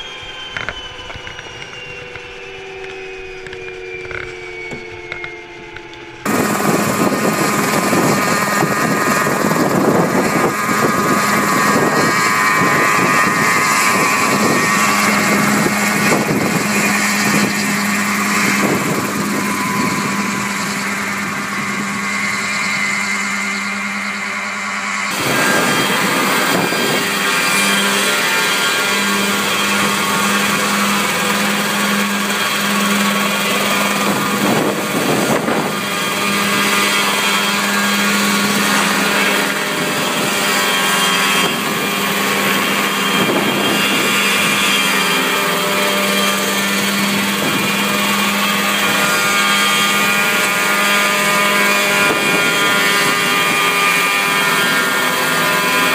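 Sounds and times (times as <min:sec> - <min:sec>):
helicopter engine and rotor drone: 0:00.0 - 0:55.9
wind rumble on microphone: 0:06.3 - 0:22.4, 0:25.1 - 0:28.2, 0:33.1 - 0:44.9, 0:46.7 - 0:50.5, 0:51.4 - 0:55.9.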